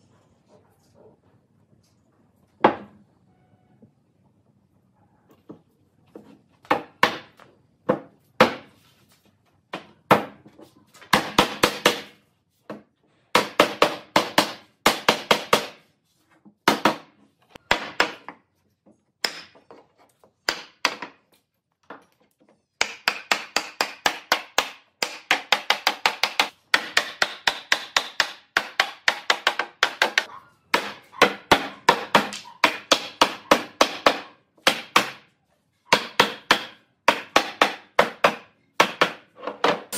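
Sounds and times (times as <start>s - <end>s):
hammer striking wood frame: 6.6s - 8.7s, 11.0s - 15.8s, 16.6s - 18.4s, 19.2s - 19.6s, 20.4s - 21.2s, 22.8s - 35.3s, 35.9s - 39.9s.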